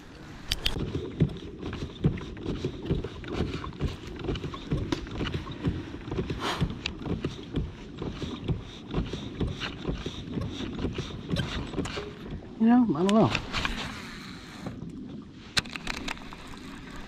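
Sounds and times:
water lapping against plastic hull: 0.0s - 17.0s
gear knocking and rattling: 0.5s - 12.4s.

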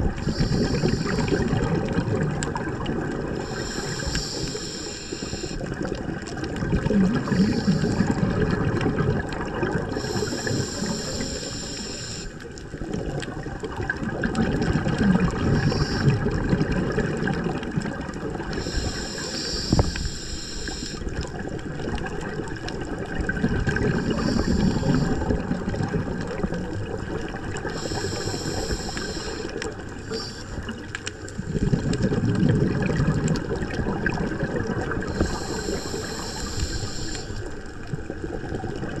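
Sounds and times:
exhaled bubbles rushing: 0.0s - 4.4s, 5.2s - 11.6s, 12.6s - 20.1s, 20.7s - 39.0s
regulator hiss on inhale: 0.1s - 1.6s, 3.4s - 5.8s, 7.2s - 8.4s, 9.9s - 12.5s, 15.4s - 16.4s, 18.4s - 21.2s, 23.8s - 25.5s, 27.5s - 31.9s, 35.0s - 37.8s.

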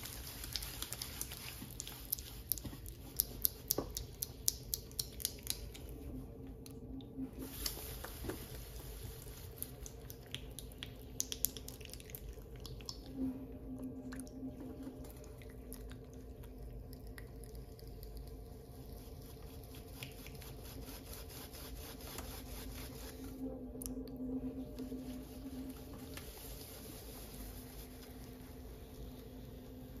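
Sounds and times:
water dripping: 0.0s - 6.0s, 9.5s - 13.2s, 13.8s - 19.1s
wet clay squishing: 0.0s - 6.0s, 7.5s - 13.4s
steady low hum: 0.0s - 30.0s.

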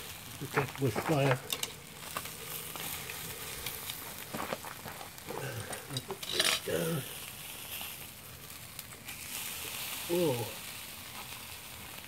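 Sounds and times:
fish sizzling on grill: 0.0s - 12.0s
metal spatula scraping rack: 6.2s - 6.7s.

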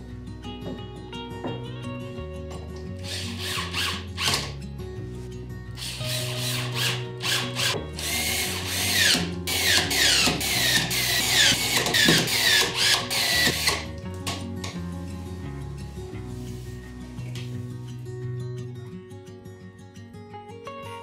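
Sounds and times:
cordless screwdriver whining: 3.0s - 4.6s, 5.8s - 13.9s.

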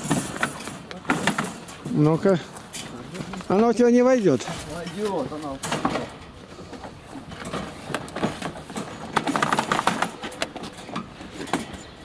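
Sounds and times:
metal wire cage rattling: 7.3s - 12.0s.

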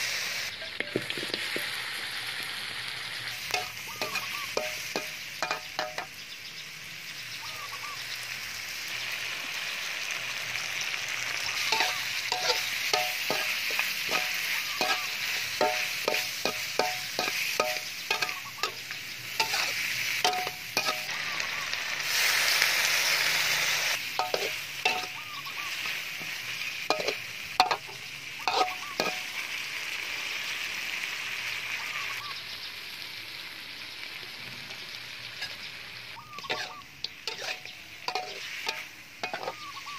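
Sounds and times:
food sizzling in a wok: 0.0s - 39.9s
metal spatula scraping a wok: 3.2s - 6.2s, 10.7s - 29.8s, 35.3s - 39.9s.

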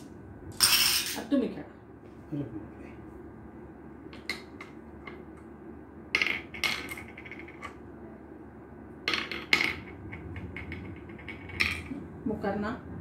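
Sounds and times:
glass marbles clicking on wooden board: 9.1s - 11.9s.

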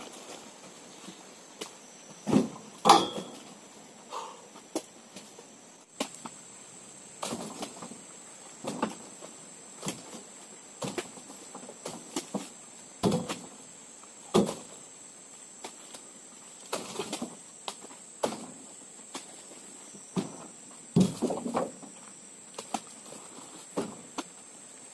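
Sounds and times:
fruit bunches thudding into truck bed: 2.2s - 3.6s, 7.2s - 8.0s, 8.6s - 9.2s, 9.8s - 13.6s, 14.2s - 14.8s, 18.2s - 19.3s, 20.1s - 21.9s, 23.7s - 24.2s.

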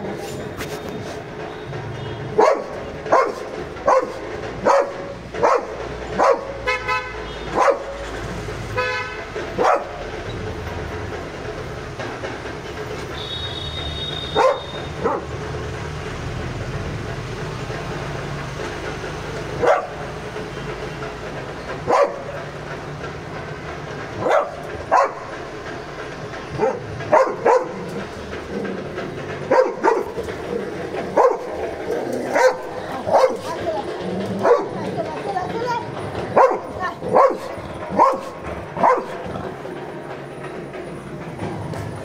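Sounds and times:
dog barking: 2.4s - 6.7s, 7.5s - 8.0s, 9.6s - 10.0s, 14.4s - 15.4s, 19.6s - 20.0s, 21.8s - 22.3s, 24.2s - 25.3s, 26.5s - 28.0s, 29.5s - 30.2s, 31.1s - 31.6s, 32.3s - 33.6s, 34.4s - 34.9s, 36.4s - 39.2s.

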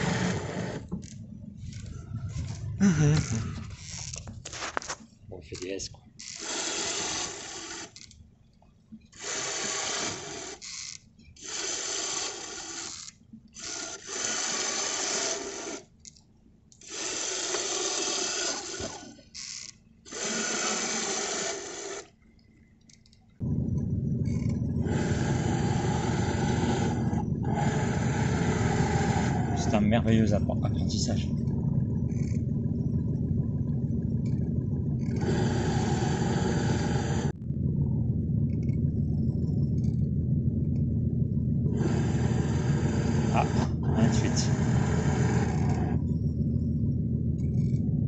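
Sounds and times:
electric tiller ram motor: 0.0s - 4.9s, 9.2s - 15.9s, 16.8s - 22.1s, 23.4s - 48.0s
steady low rumble: 0.0s - 6.2s, 22.7s - 48.0s.

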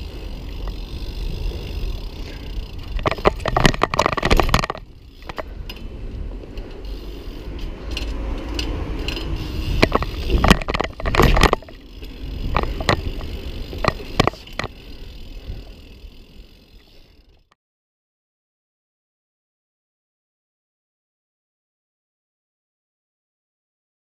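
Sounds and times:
bike hitting the ground: 0.0s - 17.2s
bike tyres rumbling on brick paving: 0.0s - 17.5s
bike rattling: 0.0s - 17.6s.

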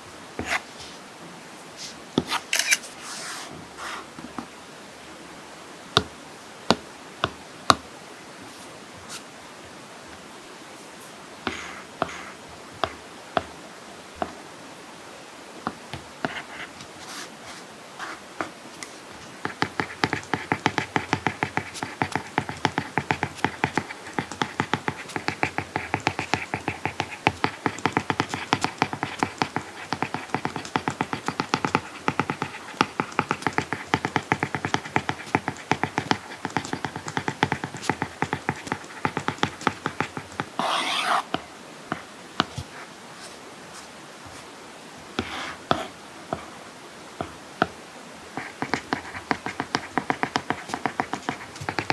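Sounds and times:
stylus tapping on tablet screen: 19.4s - 42.7s, 48.4s - 51.9s.

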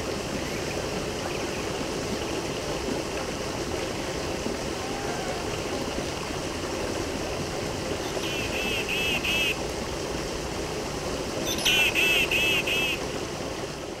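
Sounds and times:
running water: 0.0s - 14.0s
high chirping calls: 11.5s - 13.0s.

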